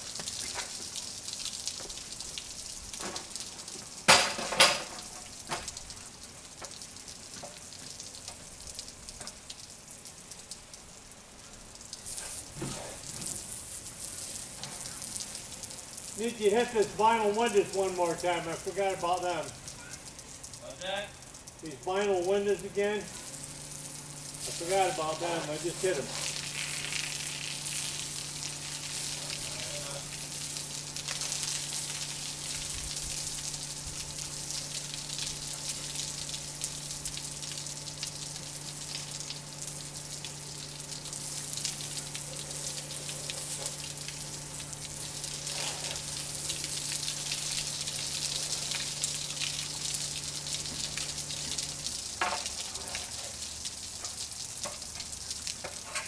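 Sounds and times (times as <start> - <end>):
steady low hum: 0.0 - 55.9
sprayer hissing: 22.1 - 37.4, 39.7 - 53.4.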